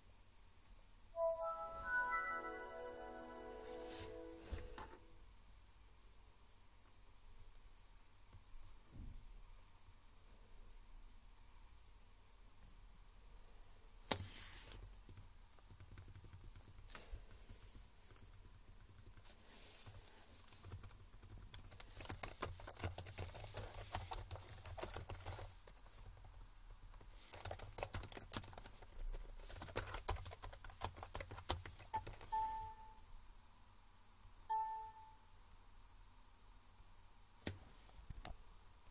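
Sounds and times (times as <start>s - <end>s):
laptop keyboard typing: 14.1s - 33.0s.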